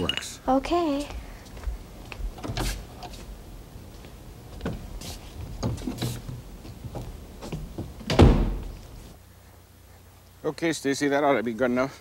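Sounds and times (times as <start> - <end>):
footsteps: 0.8 - 9.2
door shutting with a thump: 7.8 - 8.8.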